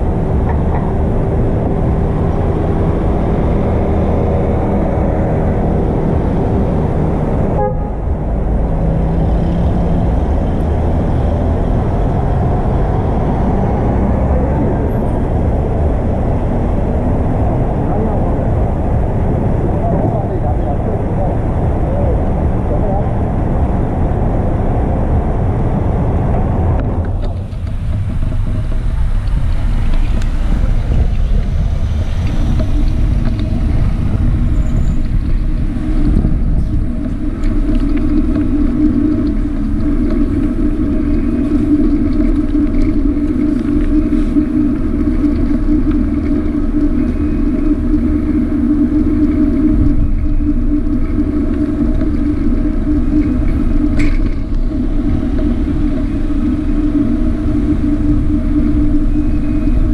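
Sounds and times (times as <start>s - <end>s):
road and wind noise rumble: 0.0s - 59.9s
steady droning tone: 0.0s - 59.9s.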